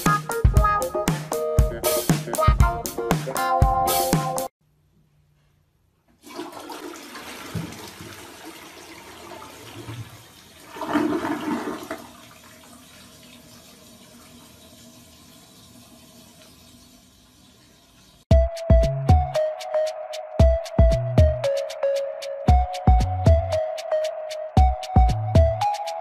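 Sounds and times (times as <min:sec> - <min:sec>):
rushing water: 0:06.3 - 0:14.8.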